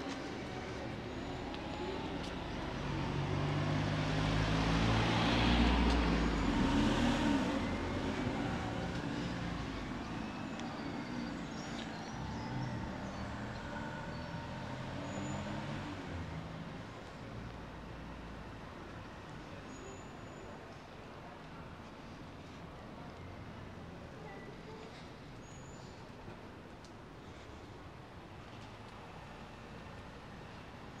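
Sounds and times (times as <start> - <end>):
background traffic: 0.0 - 31.0
vehicle driving past: 1.8 - 16.9.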